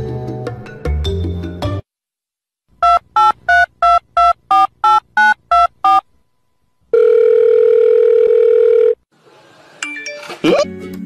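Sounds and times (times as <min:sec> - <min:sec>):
telephone ringing tone: 0:06.9 - 0:09.0.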